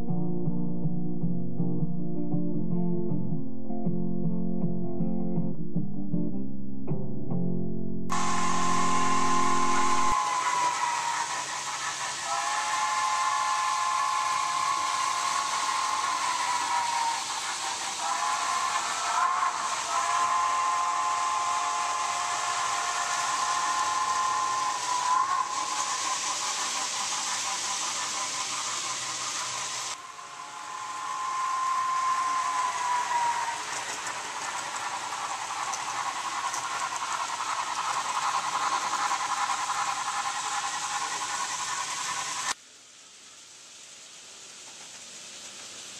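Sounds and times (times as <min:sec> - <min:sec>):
steam whistle blasts: 0:08.1 - 0:34.2
steam hissing: 0:08.1 - 0:45.9.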